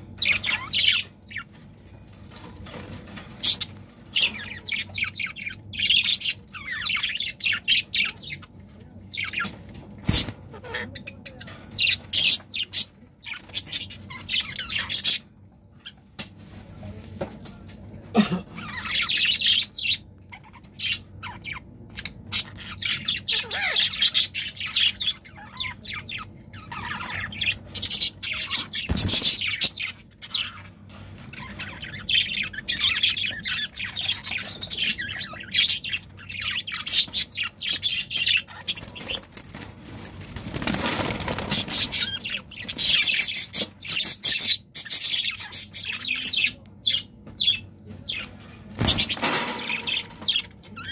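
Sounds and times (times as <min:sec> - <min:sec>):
budgerigars chirping: 0:00.0 - 0:01.6, 0:02.8 - 0:08.5, 0:18.6 - 0:39.7, 0:40.3 - 0:50.9.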